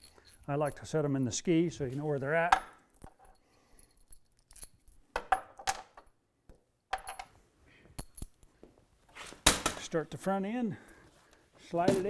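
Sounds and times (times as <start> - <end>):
metal bolts clinking: 0.0 - 6.2.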